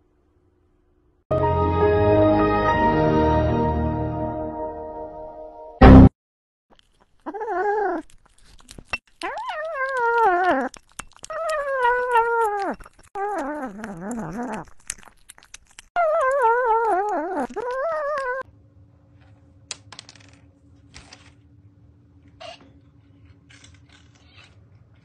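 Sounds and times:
animal whining: 7.2s - 18.5s.

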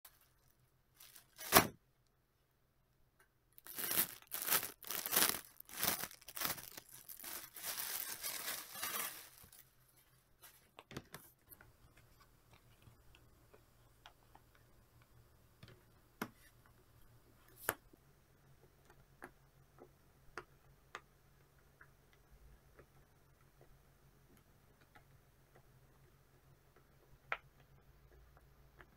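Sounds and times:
plastic packaging crinkling and tearing: 1.0s - 1.7s, 3.6s - 9.7s.

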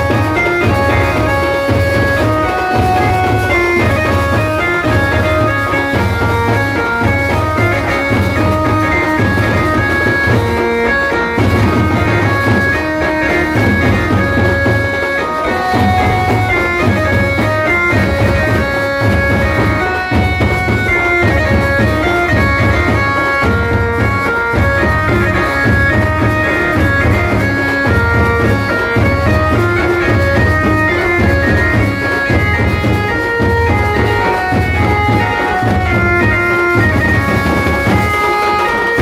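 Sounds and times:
low pulsing drum beat: 0.0s - 39.0s
reedy melody with long notes: 0.0s - 39.0s.

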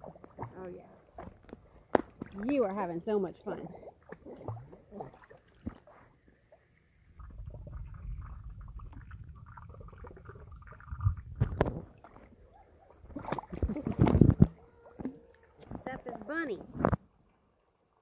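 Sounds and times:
water sloshing: 0.0s - 17.0s
muffled underwater rumble and gurgle: 7.0s - 15.9s.

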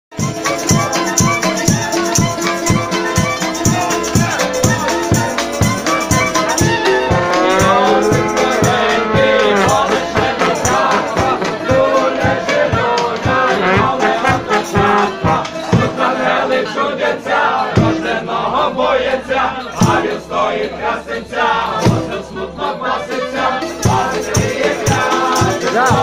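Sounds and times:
group singing a carol: 0.6s - 26.0s
steady drumbeat: 4.2s - 16.2s, 23.9s - 26.0s.

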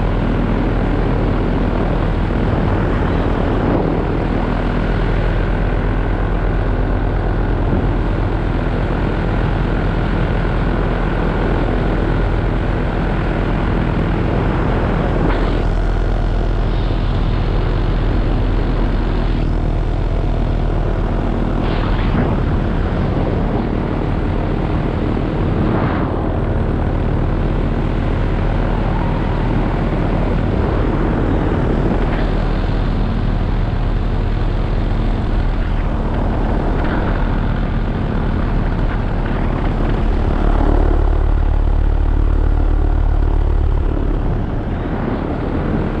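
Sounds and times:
paramotor engine and propeller: 0.0s - 46.0s.

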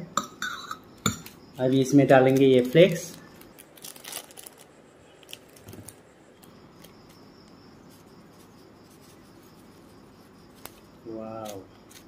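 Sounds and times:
scissors snipping plastic: 11.4s - 12.0s.

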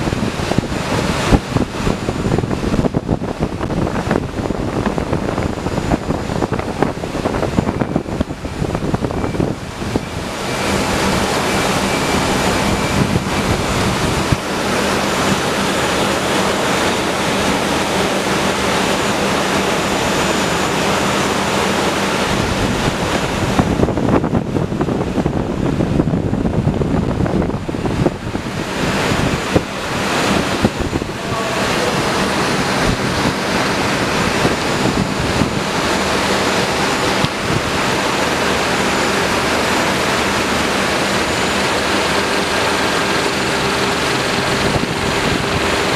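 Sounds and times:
conveyor machinery noise: 0.0s - 45.9s.

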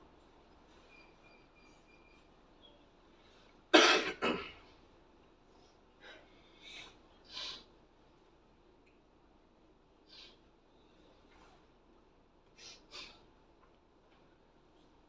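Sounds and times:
person coughing: 3.7s - 4.6s.

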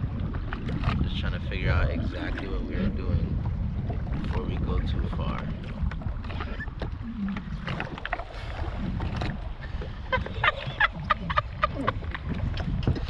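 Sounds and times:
choppy water: 0.0s - 13.0s
wind rumbling on microphone: 0.0s - 13.0s
man laughing loudly: 10.2s - 12.0s.

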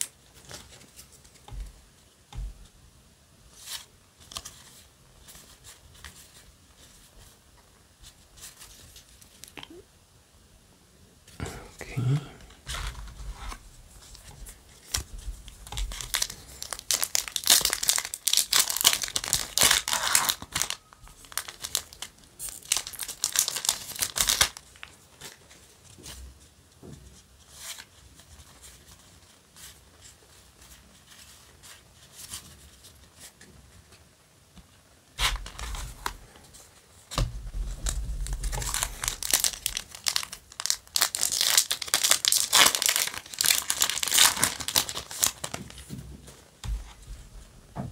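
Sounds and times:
foil wrappers tearing and crinkling: 14.8s - 25.4s, 35.2s - 36.2s, 37.7s - 45.9s
cards being handled and flipped: 35.2s - 36.2s.

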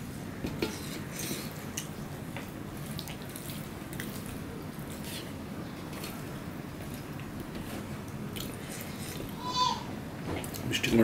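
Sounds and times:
wet squishing of rice: 0.7s - 9.4s.

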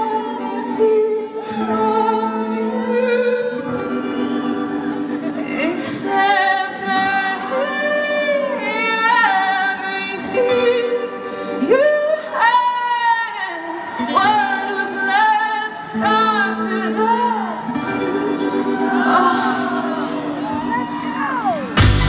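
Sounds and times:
woman singing lead vocal: 0.0s - 22.0s
band playing: 17.0s - 22.0s.

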